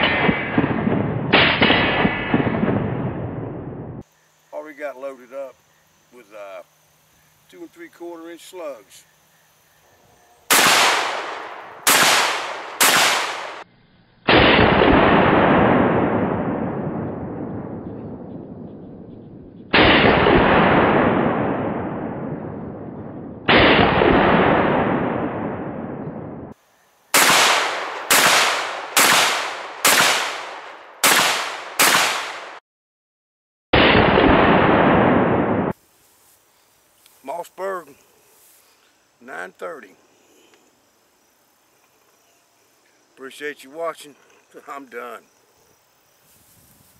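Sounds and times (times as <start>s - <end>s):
shotgun shots: 0.0s - 3.6s, 10.5s - 13.6s, 14.3s - 17.8s, 19.7s - 26.4s, 27.2s - 32.6s, 33.8s - 35.8s
slowed-down deep gunshot booms: 0.0s - 4.0s, 10.5s - 13.6s, 14.3s - 26.6s, 27.2s - 32.6s, 33.8s - 35.8s.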